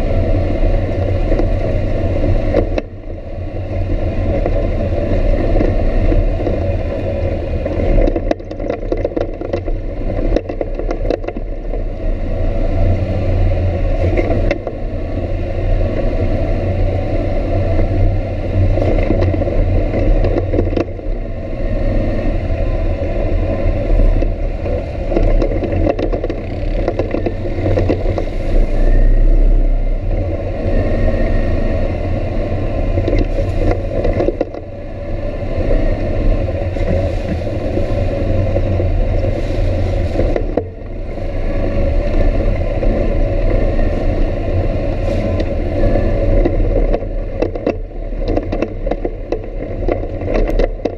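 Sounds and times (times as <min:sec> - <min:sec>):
off-road vehicle engine running: 0:00.0 - 0:50.9
knocks and rattles: 0:07.6 - 0:11.5, 0:24.7 - 0:28.3.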